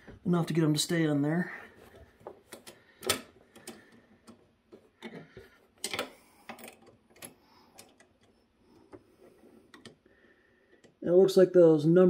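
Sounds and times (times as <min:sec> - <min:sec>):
small plastic clicks and knocks: 0:02.2 - 0:09.1.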